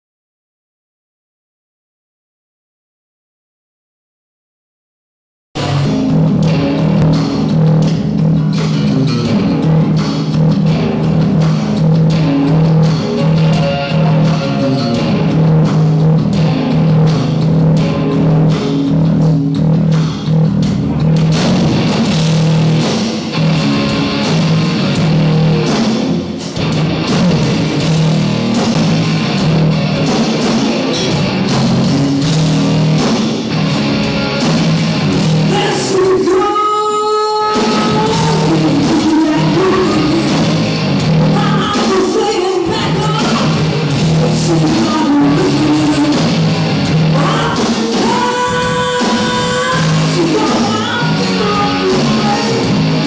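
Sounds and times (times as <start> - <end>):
drum kit: 5.6 - 53.0
electric guitar: 5.6 - 53.0
woman singing: 35.5 - 40.5, 41.3 - 43.6, 44.4 - 46.2, 47.2 - 52.8.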